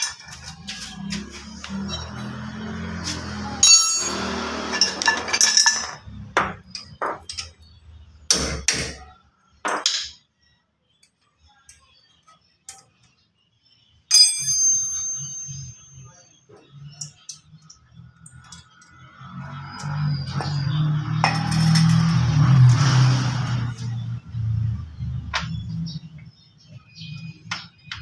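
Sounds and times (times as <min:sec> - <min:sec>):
metal tools clinking: 0:03.2 - 0:07.6, 0:21.2 - 0:22.4
metal part struck ringing: 0:03.6 - 0:06.0, 0:14.1 - 0:16.1.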